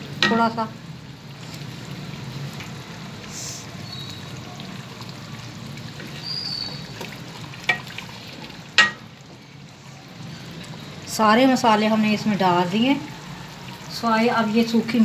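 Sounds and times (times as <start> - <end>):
gravy bubbling in a pot: 0.0 - 15.0
wooden spoon knocking a pot: 8.8 - 9.0.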